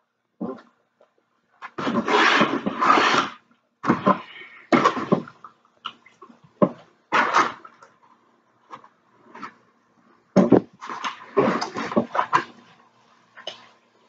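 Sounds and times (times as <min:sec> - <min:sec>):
plastic fork scraping styrofoam: 0:01.7 - 0:05.2.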